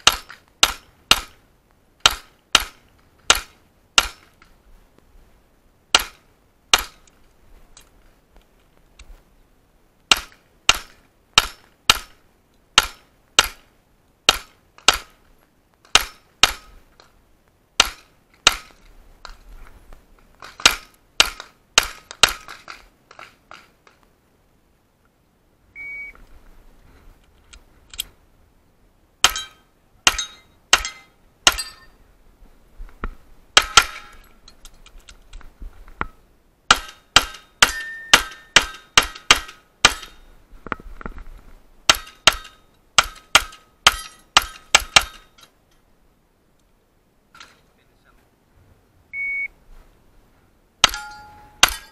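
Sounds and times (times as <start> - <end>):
electronic shot timer beep: 25.8 - 26.2, 49.2 - 49.5.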